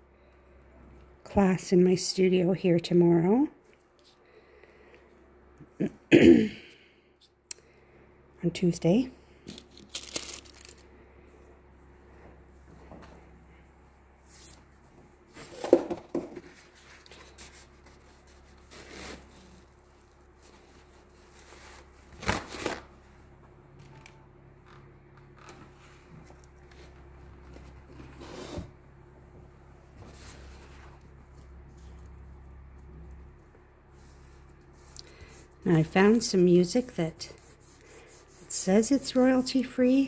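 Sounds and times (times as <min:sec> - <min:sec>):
faint steady hum: 0:00.0 - 0:40.0
paper rustling: 0:09.5 - 0:10.8, 0:16.4 - 0:22.9.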